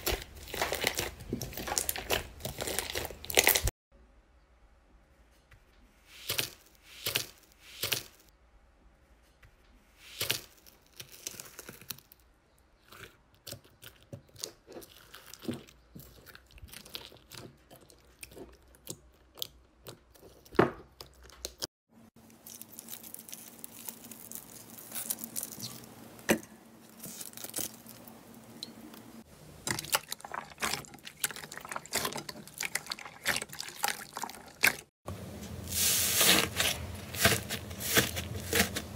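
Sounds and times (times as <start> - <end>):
slime crackling and squishing: 0.0 - 3.7, 10.0 - 26.3, 26.9 - 28.4, 29.6 - 34.9, 35.7 - 38.9
slime crust crunching: 0.0 - 3.7, 22.2 - 26.1, 26.9 - 28.2, 35.7 - 38.9.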